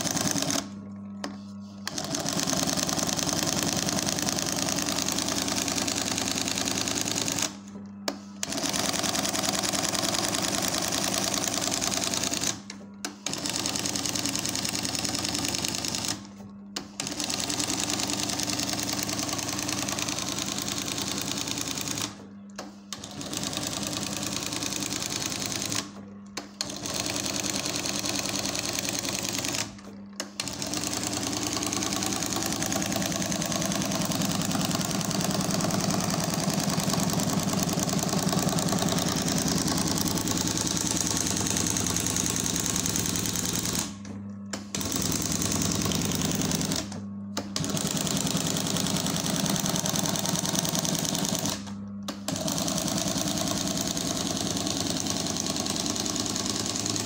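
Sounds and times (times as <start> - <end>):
embroidery machine stitching clatter: 0.0 - 0.7, 1.9 - 7.6, 8.4 - 44.0, 44.6 - 57.0
motor hum: 28.8 - 57.0.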